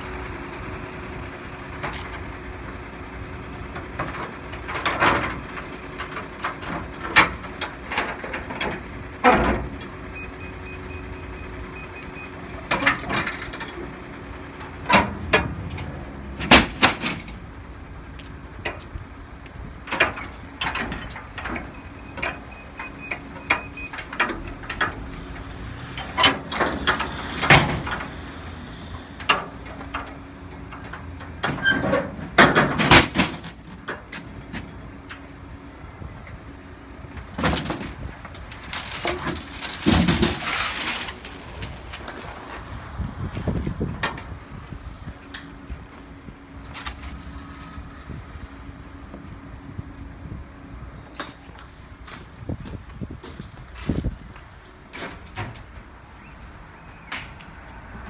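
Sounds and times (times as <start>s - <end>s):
truck idling hum: 0.0s - 58.0s
metal doors clanking: 3.7s - 9.9s, 14.6s - 17.5s, 19.8s - 34.3s
metal ramp set down: 14.9s - 17.4s, 23.1s - 28.4s, 29.2s - 34.2s, 37.2s - 42.1s.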